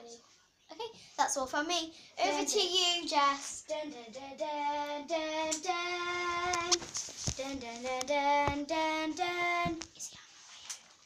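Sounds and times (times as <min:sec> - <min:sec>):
child singing wordless jingle: 0:02.2 - 0:06.8, 0:07.4 - 0:10.1.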